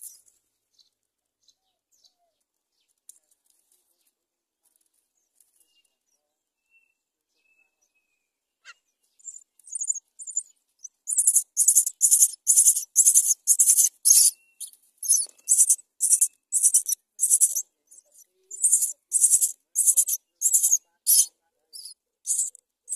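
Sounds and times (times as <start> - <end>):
nestlings begging with hissing rasps: 11.1 - 22.9.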